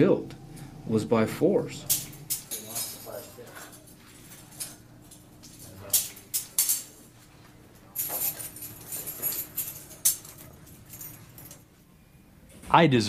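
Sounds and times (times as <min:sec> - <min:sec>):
chains rustling and jingling: 0:01.9 - 0:07.3, 0:07.9 - 0:11.6.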